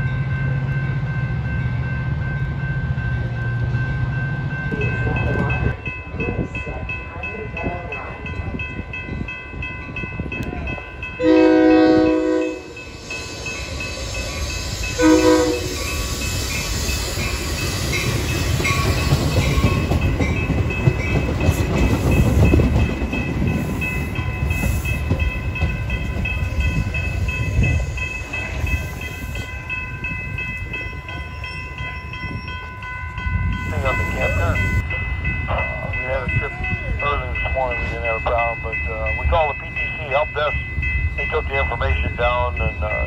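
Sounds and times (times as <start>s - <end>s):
train rumble and wheel clatter: 0.0s - 43.0s
locomotive horn: 11.2s - 12.8s, 15.0s - 15.9s.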